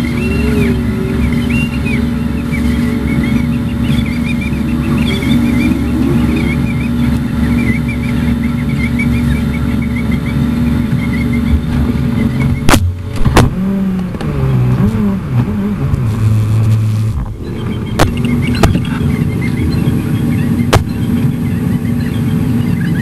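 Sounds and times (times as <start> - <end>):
low engine note wavering: 0.0 - 23.0
vehicle engines humming: 0.0 - 23.0
sharp knocks: 11.4 - 14.3, 17.2 - 19.1, 20.7 - 21.2.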